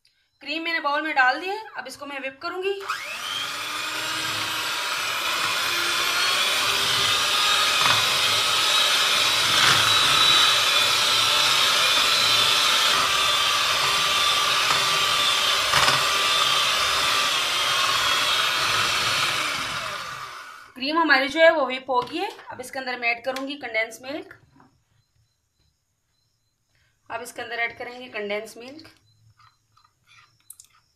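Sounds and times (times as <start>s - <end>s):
electric hand mixer whipping cream: 2.8s - 20.8s.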